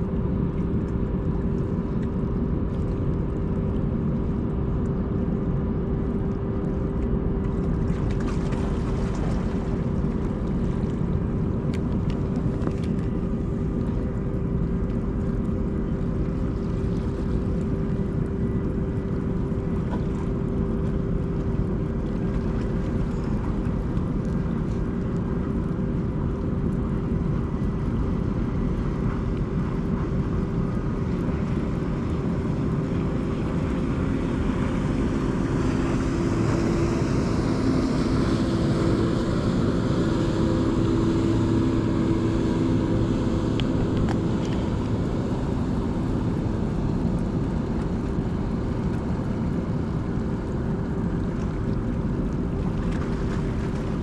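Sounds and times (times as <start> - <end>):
ship machinery drone: 0.0 - 54.0
wind: 0.0 - 54.0.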